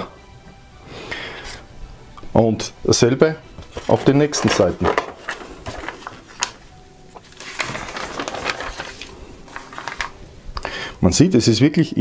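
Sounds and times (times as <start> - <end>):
paper pages rustling: 3.6 - 10.3.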